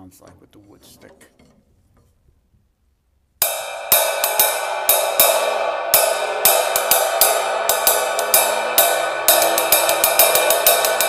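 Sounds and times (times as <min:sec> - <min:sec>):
stick strokes on ride cymbal: 0:03.4 - 0:11.0.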